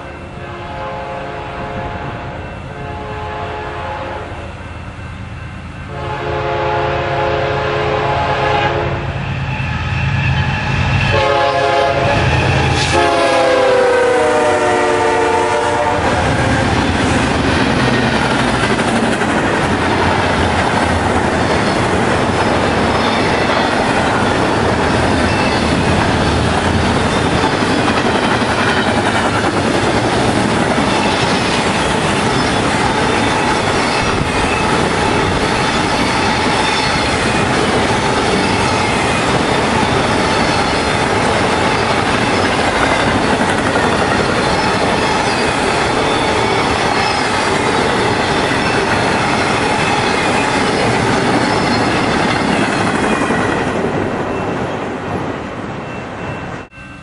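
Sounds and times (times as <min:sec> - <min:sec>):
train rumble: 0:00.0 - 0:57.0
locomotive air horn blasts: 0:00.4 - 0:04.4, 0:05.9 - 0:09.2, 0:11.0 - 0:16.7
wheels clacking on rail joints: 0:15.0 - 0:54.3.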